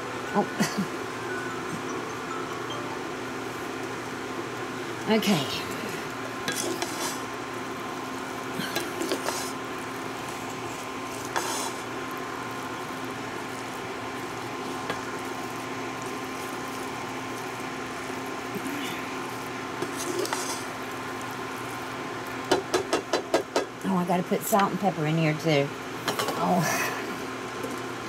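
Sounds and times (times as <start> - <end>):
steady hum: 0.0 - 28.0
wooden spatula scraping frying pan: 6.5 - 7.3, 11.2 - 11.8, 19.8 - 20.7.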